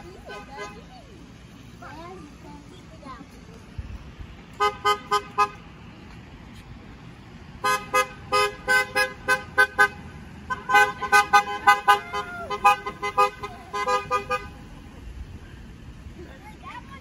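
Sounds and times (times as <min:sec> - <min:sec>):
car horn honking: 0:00.0 - 0:01.0, 0:04.6 - 0:05.7, 0:07.6 - 0:14.7.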